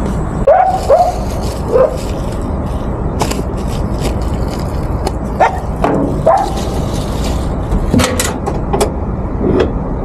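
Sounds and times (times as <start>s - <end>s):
steady low rumble: 0.0s - 10.0s
dogs yelping: 0.5s - 2.2s, 5.4s - 6.8s.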